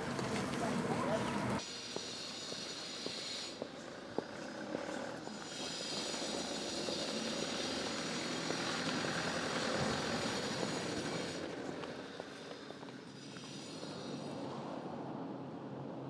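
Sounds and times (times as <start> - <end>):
vehicle passing by: 3.9 - 12.3.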